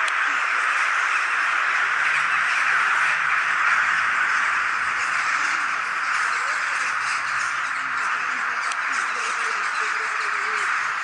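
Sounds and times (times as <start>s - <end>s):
crows cawing: 0.0s - 11.0s.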